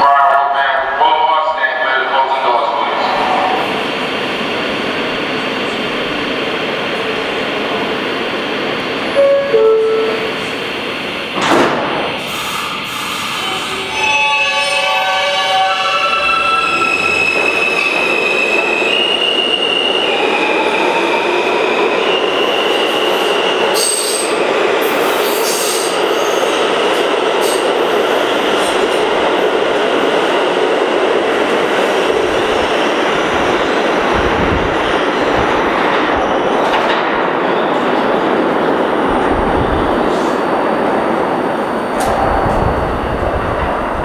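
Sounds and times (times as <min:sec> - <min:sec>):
train cars rumbling on rails: 0:00.0 - 0:44.0
rail clicks and squeals: 0:09.0 - 0:10.6, 0:11.4 - 0:29.2, 0:34.9 - 0:38.3, 0:41.7 - 0:44.0
train propulsion whine: 0:37.8 - 0:44.0.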